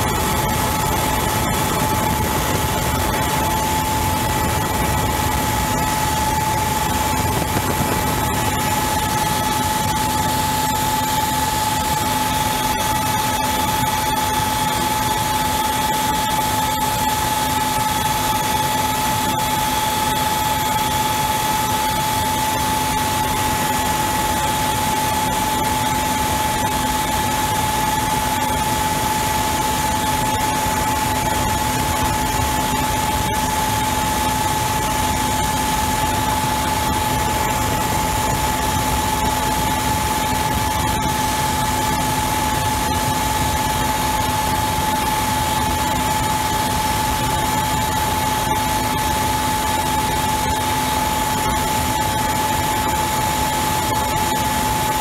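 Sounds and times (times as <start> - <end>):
helicopter turbine whine: 0.0 - 55.0
rotor and airflow rushing: 0.1 - 9.9.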